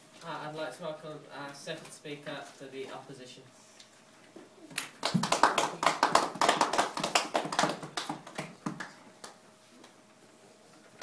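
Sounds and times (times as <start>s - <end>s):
audience applauding: 4.8s - 9.4s.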